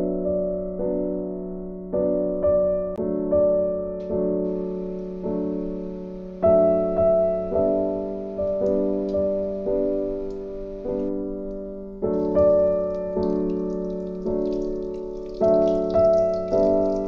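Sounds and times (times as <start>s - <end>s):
soft piano chords: 0.0s - 17.0s.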